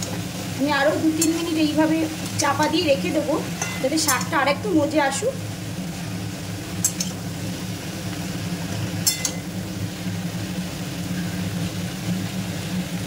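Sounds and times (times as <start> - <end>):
spatula stirring vegetables in pan: 0.0 - 10.1
low kitchen hum: 0.0 - 13.0
spatula clinking against pan: 1.2 - 1.5, 3.6 - 4.4, 6.8 - 7.2, 9.0 - 9.5.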